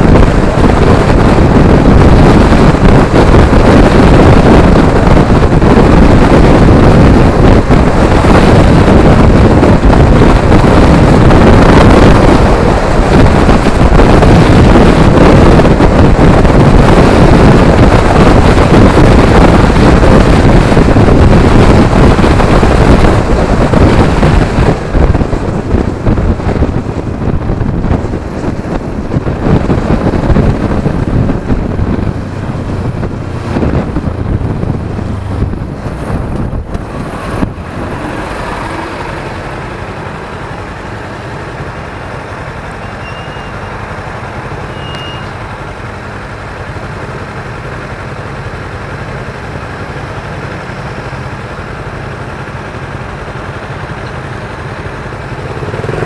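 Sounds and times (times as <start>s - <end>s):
wind buffeting microphone: 0.0s - 42.8s.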